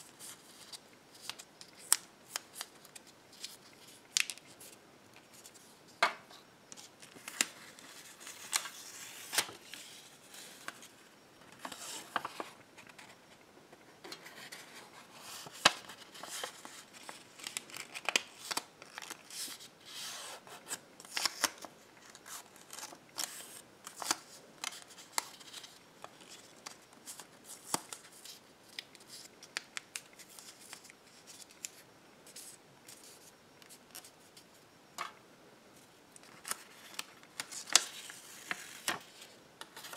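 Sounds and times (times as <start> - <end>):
paper crinkling and crackling: 11.5 - 13.2, 14.0 - 19.6, 36.2 - 39.9.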